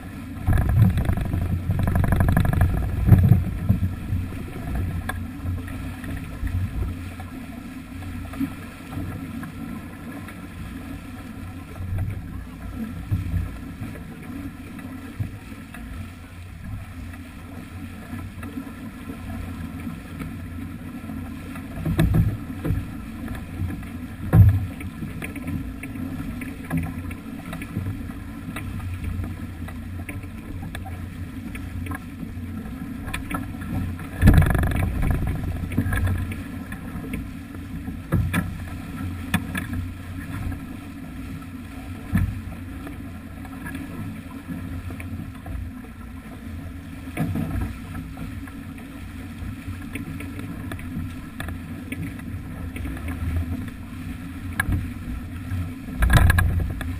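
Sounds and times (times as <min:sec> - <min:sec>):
wind rumble on microphone: 0:00.0 - 0:07.4, 0:21.7 - 0:48.5, 0:54.4 - 0:56.9
water rushing along hull: 0:00.0 - 0:56.9.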